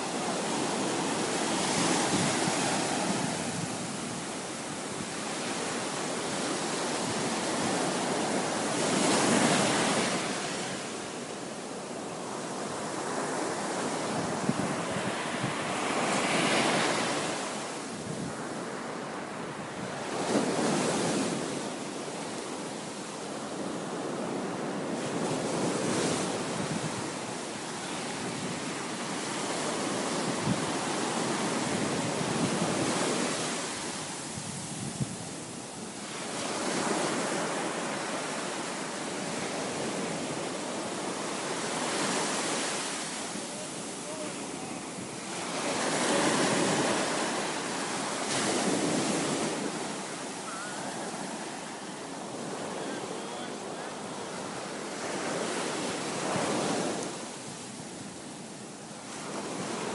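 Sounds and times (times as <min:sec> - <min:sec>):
ocean surf breaking: 0:00.0 - 0:58.4
wind buffeting microphone: 0:00.7 - 0:05.2, 0:14.0 - 0:18.5, 0:25.2 - 0:27.2, 0:29.8 - 0:35.9.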